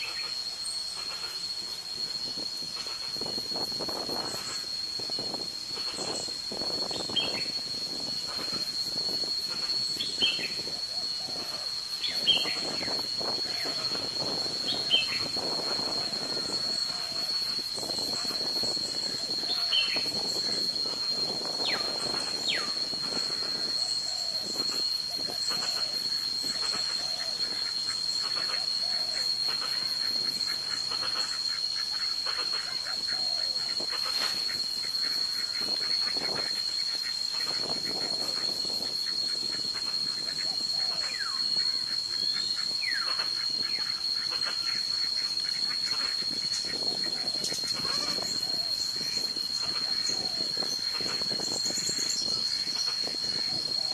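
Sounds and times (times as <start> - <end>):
high-pitched insect drone: 0.0 - 53.9
wetland ambience hiss: 0.0 - 53.9
falling whistled bird calls: 10.0 - 22.8.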